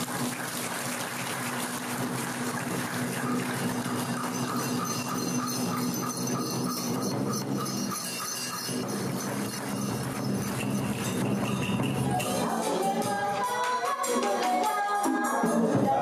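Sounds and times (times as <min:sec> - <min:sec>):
water splashing and churning: 0:00.0 - 0:06.2.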